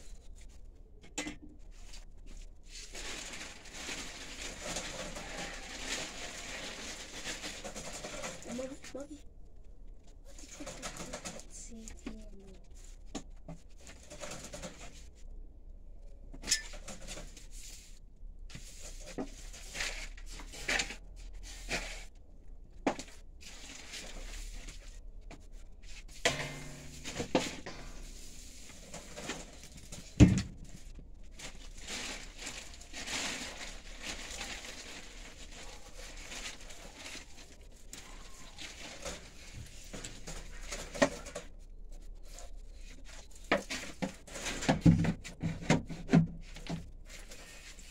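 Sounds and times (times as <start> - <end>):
dry hay rustling and crackling: 2.7 - 9.1, 25.9 - 41.5
knocks against wire cage: 26.2 - 28.2.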